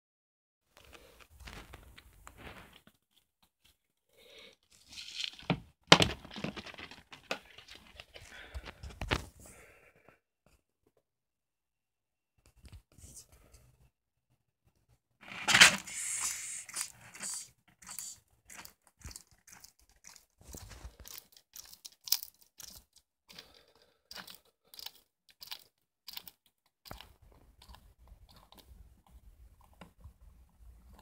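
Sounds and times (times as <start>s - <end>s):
lizard crunching insect shell: 15.9s - 29.9s.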